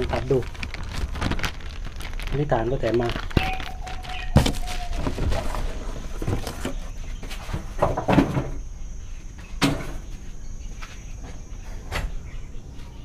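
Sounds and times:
cardboard box rustling: 0:03.1 - 0:07.0
knocks and thuds on wooden workbench: 0:07.8 - 0:08.6.

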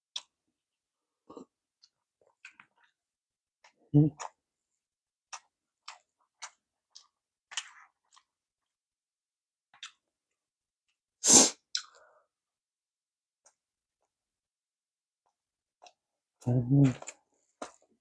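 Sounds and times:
wet mouth clicks chewing: 0:00.1 - 0:00.3, 0:11.7 - 0:12.0
loud sharp mouth sound: 0:11.2 - 0:11.9.

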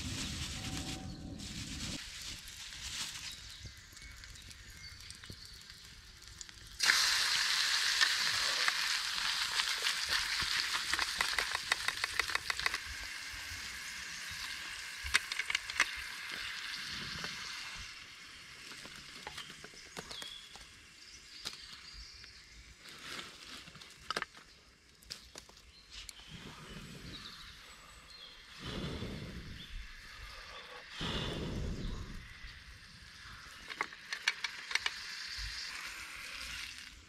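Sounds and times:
steak sizzling with crackles: 0:00.0 - 0:24.0, 0:32.0 - 0:37.0.

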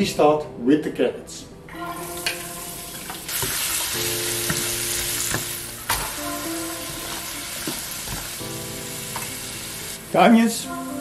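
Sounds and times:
vegetables sizzling in hot oil: 0:02.6 - 0:10.4
wooden spatula stirring: 0:03.3 - 0:08.5.

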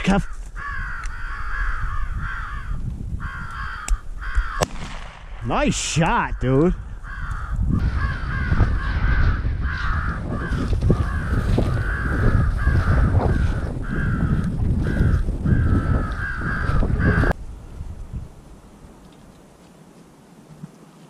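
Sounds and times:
crows cawing: 0:00.1 - 0:04.8, 0:06.8 - 0:17.4.

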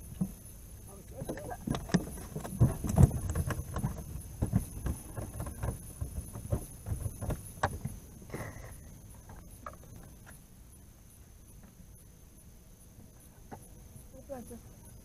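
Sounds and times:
knocks and bumps of gear: 0:01.1 - 0:10.4.

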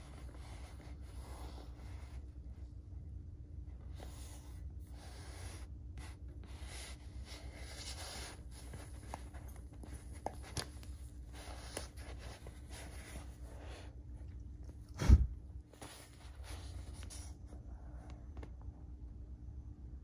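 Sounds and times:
steady low hum: 0:00.0 - 0:20.0
fingers rustling on leather: 0:03.9 - 0:14.0.

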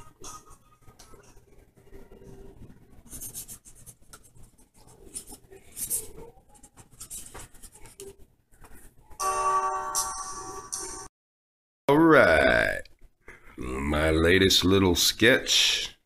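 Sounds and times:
marker scratching across paper: 0:03.0 - 0:08.9.

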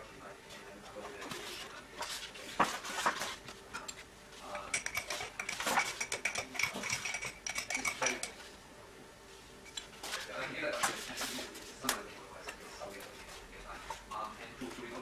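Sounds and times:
teaspoon clinking against glass: 0:04.6 - 0:08.4.

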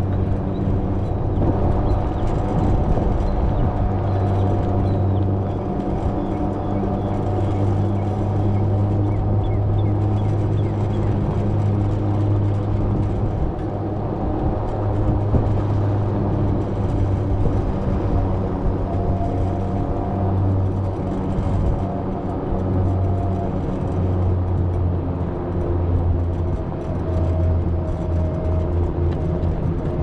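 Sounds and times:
tyre and wind noise: 0:00.0 - 0:30.0.

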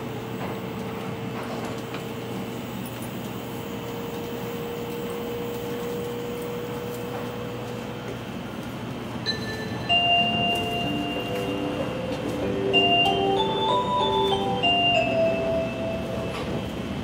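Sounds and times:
train interior rumble and hiss: 0:00.0 - 0:17.0
onboard chime melody: 0:09.2 - 0:16.4.

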